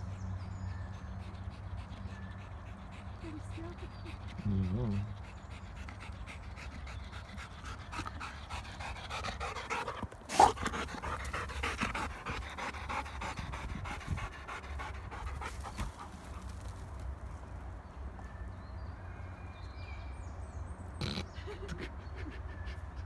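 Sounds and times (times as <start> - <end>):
dog panting: 0.0 - 16.6, 21.5 - 23.0.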